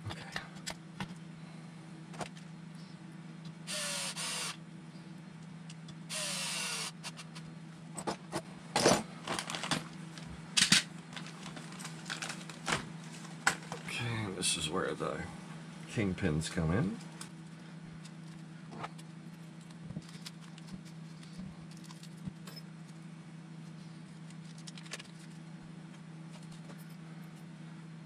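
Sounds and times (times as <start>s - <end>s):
electric screwdriver running: 3.7s - 4.6s, 6.1s - 7.2s.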